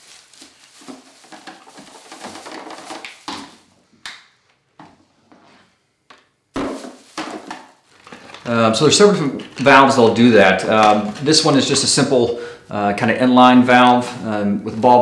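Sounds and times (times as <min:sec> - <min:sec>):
plastic packs clicking and rustling: 0:00.0 - 0:03.6, 0:06.6 - 0:12.1.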